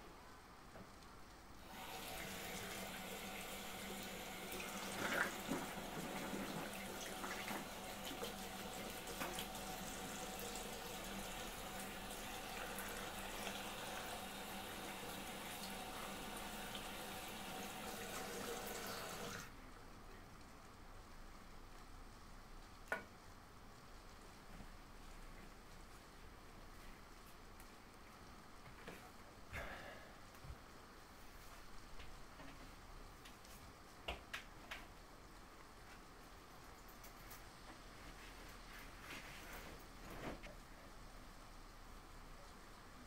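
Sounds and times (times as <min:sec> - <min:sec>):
tap water running: 0:01.6 - 0:19.5.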